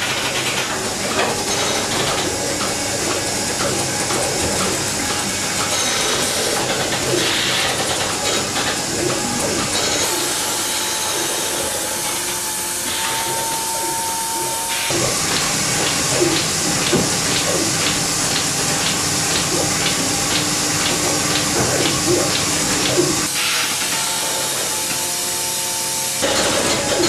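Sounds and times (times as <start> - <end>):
milking machine vacuum hiss: 0.0 - 27.0
milking cups pulsation ticking: 13.4 - 23.3.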